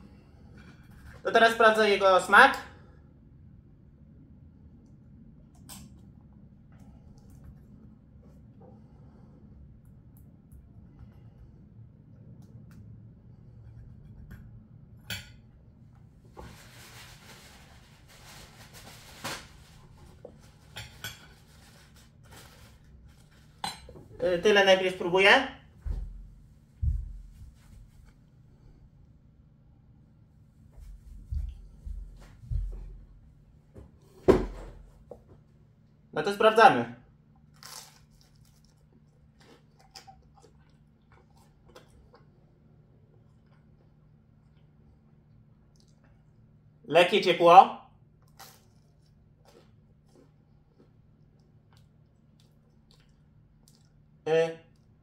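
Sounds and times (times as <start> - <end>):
paper napkin rustling: 16.3 - 23.6
bite into toasted bread: 37.5 - 40.6
chewing with wet clicks: 37.6 - 42.5, 43.1 - 46.4, 48.2 - 54.1.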